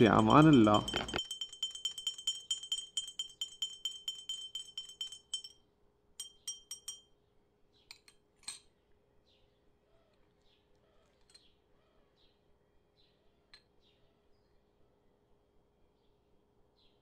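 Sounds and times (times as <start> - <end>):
spoon tapping glass: 0.0 - 7.2
teaspoon clinking against glass: 0.0 - 7.2.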